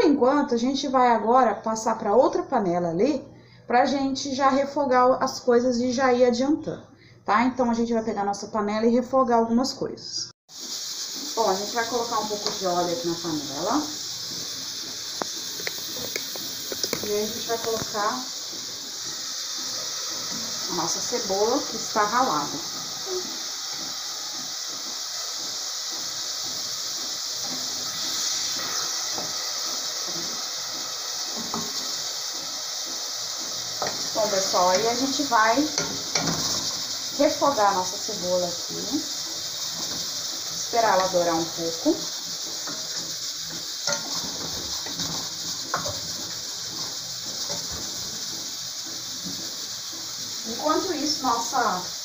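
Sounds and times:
onion sizzling in hot oil: 10.5s - 52.0s
wooden spoon knocking on pan: 30.0s - 32.0s, 33.7s - 38.0s, 39.0s - 48.5s.

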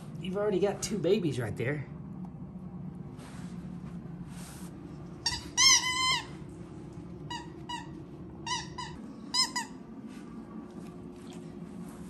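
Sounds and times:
rubber squeaky toy squeaking: 5.2s - 6.3s.

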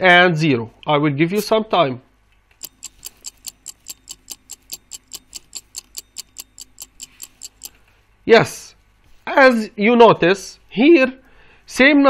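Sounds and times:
clock ticking: 2.6s - 7.8s.

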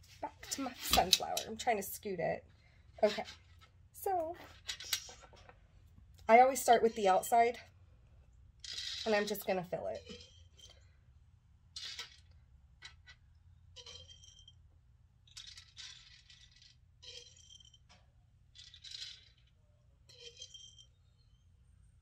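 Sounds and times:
plastic beads rattling: 15.3s - 17.9s, 18.5s - 20.9s.

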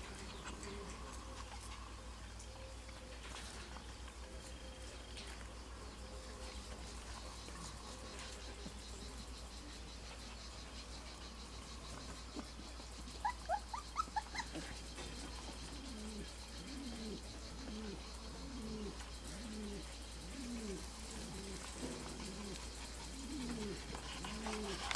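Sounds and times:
bird cooing: 0.0s - 3.7s, 11.8s - 24.9s
puppies squeaking: 13.2s - 14.7s.

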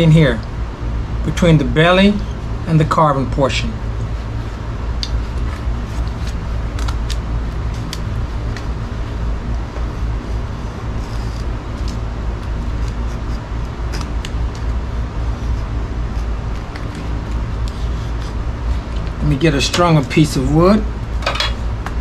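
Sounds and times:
knife scraping wood: 9.7s - 19.0s.

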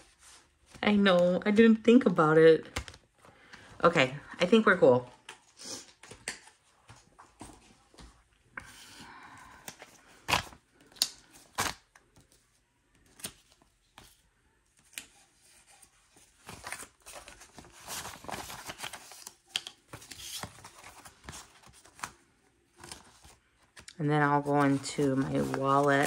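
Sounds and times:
paper rustling and crinkling: 9.7s - 26.0s.

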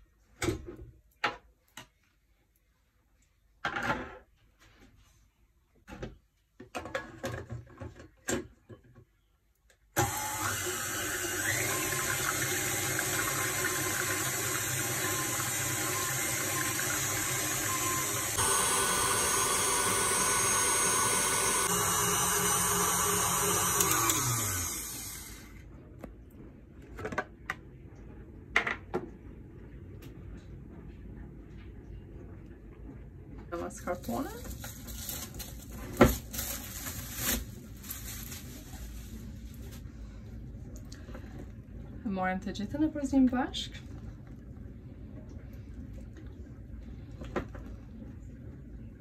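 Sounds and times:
stand mixer motor whipping: 10.0s - 25.5s.

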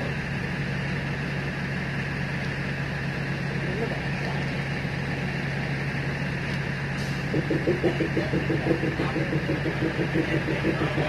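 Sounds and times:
train diesel engine humming: 0.0s - 11.0s
rapid rhythmic pulsing: 7.3s - 11.0s.

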